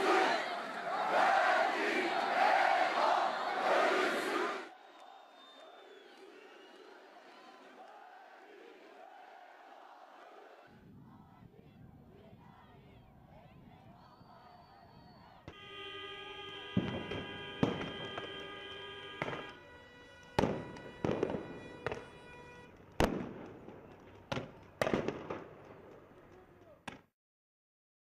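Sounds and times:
steady horn-like tone: 15.5 - 22.7
crowd-control munitions bangs: 16.6 - 19.6, 20.3 - 26.8.

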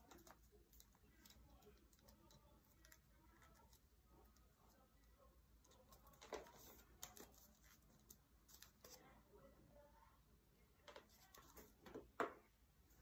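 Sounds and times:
paper crackles: 5.7 - 9.0
paper rustling and crinkling: 5.7 - 9.0.

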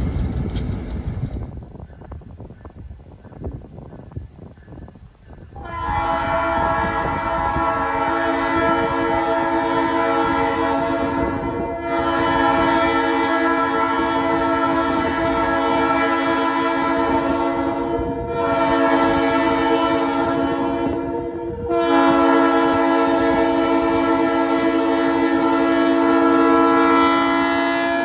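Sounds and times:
train rumbling: 0.0 - 28.0
locomotive air horn blasts: 5.6 - 28.0.

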